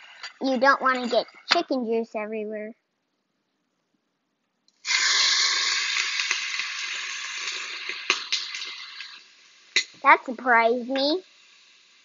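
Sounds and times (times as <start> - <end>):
chicken sizzling in hot oil: 4.8 - 12.0.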